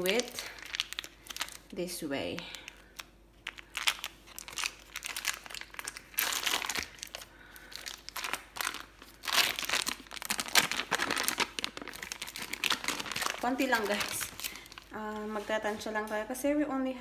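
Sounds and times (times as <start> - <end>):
foil wrapper crinkling: 0.0 - 15.9.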